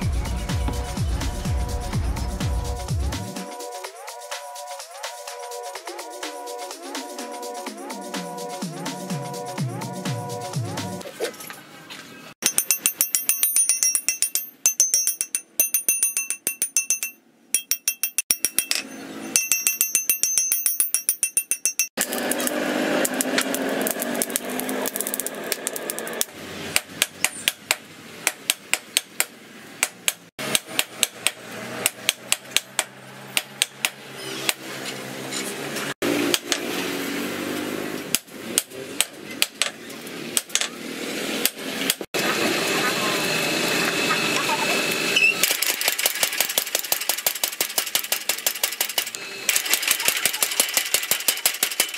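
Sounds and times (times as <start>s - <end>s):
hammer on anvil: 12.4s - 23.5s.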